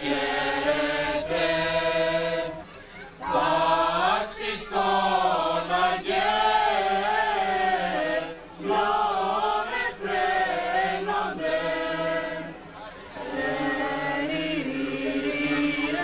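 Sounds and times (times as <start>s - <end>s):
choir singing held notes: 0.0s - 16.0s.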